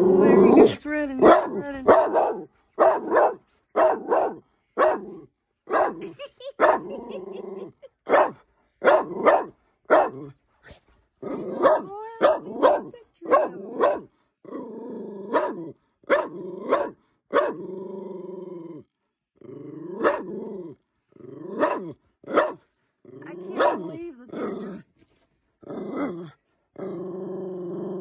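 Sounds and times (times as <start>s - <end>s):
dog barking: 0.5s - 7.2s, 8.1s - 10.3s, 11.4s - 14.1s, 15.3s - 17.6s, 20.0s - 20.3s, 21.6s - 22.7s, 23.5s - 24.8s.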